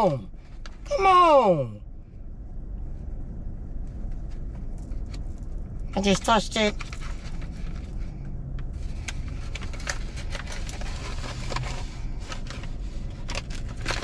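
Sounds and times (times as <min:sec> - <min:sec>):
low hum in car cabin: 0:00.0 - 0:14.0
light clicks and crinkles of handling: 0:03.7 - 0:14.0.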